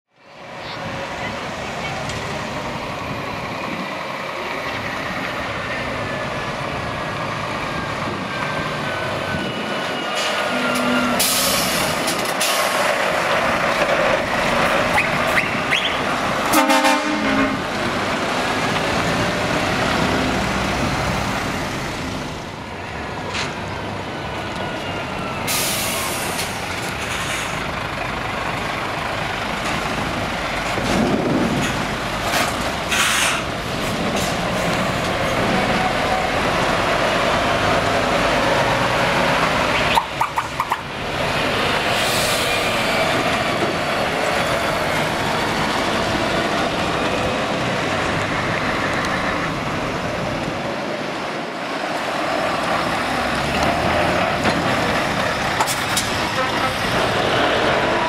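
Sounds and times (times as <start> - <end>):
lorries driving past: 0.1 - 58.0
air brakes hissing: 10.2 - 12.8, 25.4 - 27.6, 32.9 - 33.5, 41.9 - 43.0
horn blast: 16.5 - 17.7.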